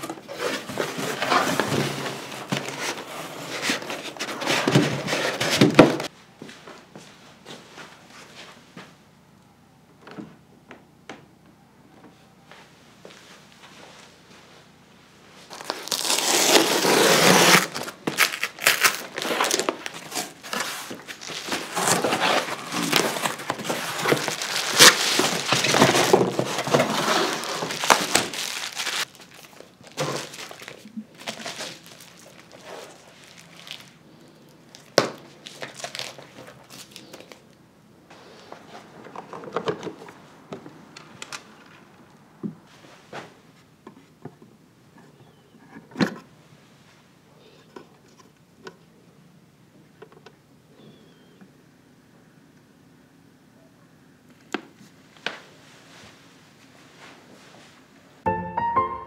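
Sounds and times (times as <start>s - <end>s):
packaging crinkling and rustling: 0.0s - 6.1s, 15.4s - 37.6s.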